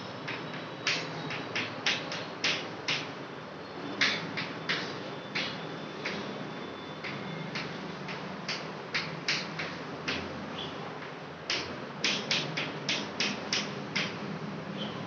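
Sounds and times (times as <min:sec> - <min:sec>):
chalk strokes and taps on chalkboard: 0:00.3 - 0:03.1, 0:07.0 - 0:10.4, 0:11.0 - 0:14.2.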